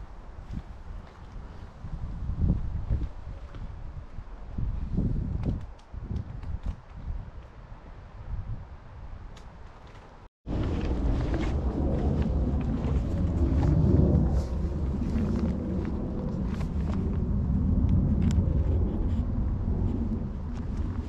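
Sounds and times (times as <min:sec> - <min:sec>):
wind buffeting microphone: 0:00.0 - 0:09.8, 0:10.5 - 0:21.0.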